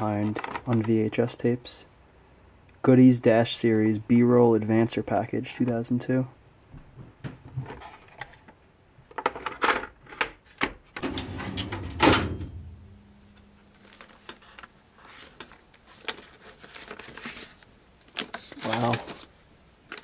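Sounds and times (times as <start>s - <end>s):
metal drawer scraping: 11.0s - 13.0s
loud metal clunk: 11.0s - 13.2s
file folders clicking: 11.0s - 13.4s.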